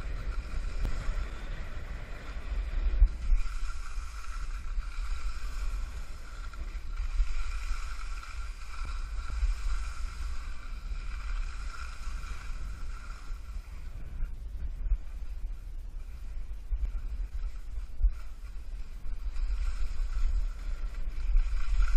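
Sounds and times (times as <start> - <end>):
skis hissing on snow: 0.0 - 21.9
wind buffeting microphone: 0.0 - 21.9.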